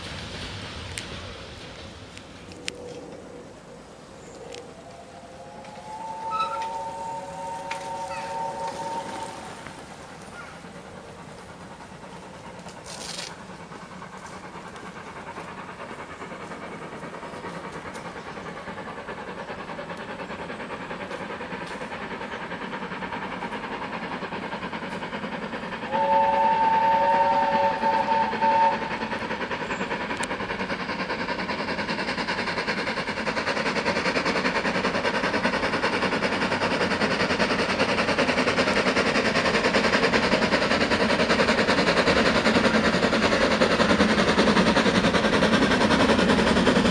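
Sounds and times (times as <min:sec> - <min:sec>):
train running noise: 0:00.0 - 0:46.9
train whistle: 0:04.7 - 0:09.8, 0:25.9 - 0:29.0.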